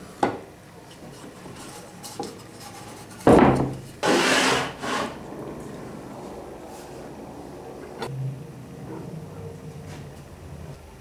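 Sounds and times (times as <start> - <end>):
wood scraping against metal: 0.9 - 7.2.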